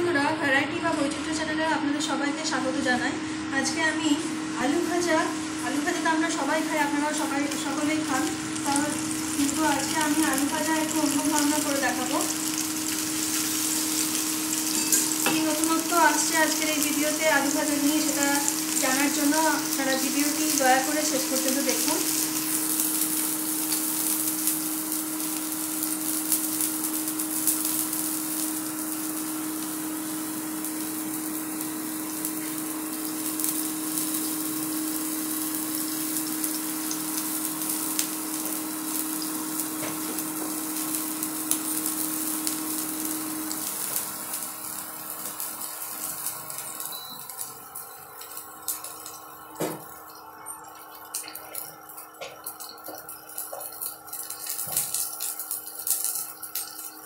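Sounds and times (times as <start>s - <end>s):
steady hum: 0.0s - 26.6s
oil sizzling in wok: 0.1s - 57.0s.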